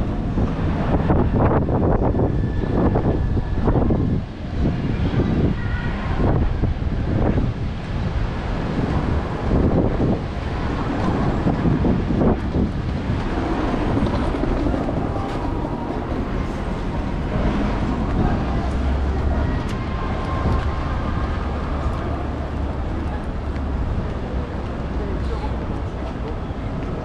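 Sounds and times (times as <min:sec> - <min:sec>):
traffic rumble: 0:00.0 - 0:27.0.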